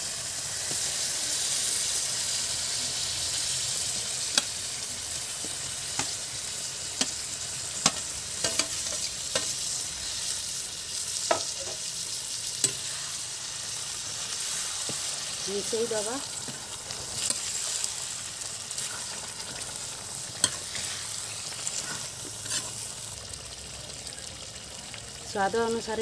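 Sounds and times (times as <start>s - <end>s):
chicken sizzling in oil: 0.0s - 26.0s
ladle scraping and stirring: 20.3s - 22.9s.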